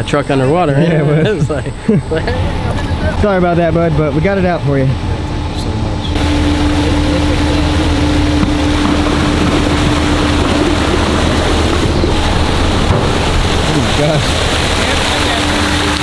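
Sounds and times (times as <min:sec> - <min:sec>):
steady whine: 0:00.0 - 0:16.0
truck engine hum: 0:00.0 - 0:16.0
floodwater gushing and splashing: 0:06.2 - 0:16.0.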